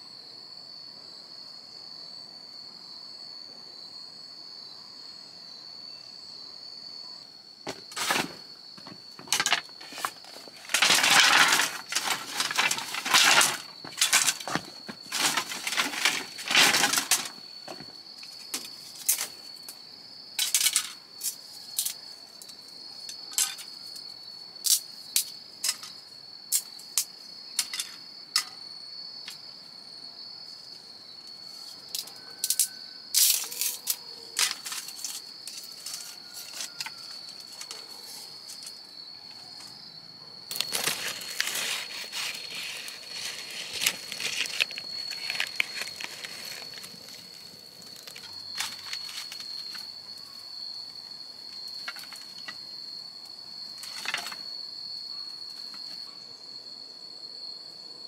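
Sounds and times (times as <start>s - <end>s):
high-pitched insect drone: 0.0s - 58.0s
rustling noise: 7.7s - 19.4s, 40.5s - 49.8s.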